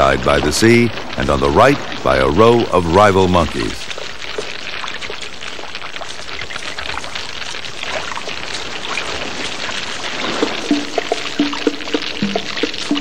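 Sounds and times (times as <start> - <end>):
animals splashing through shallow water: 0.0 - 13.0.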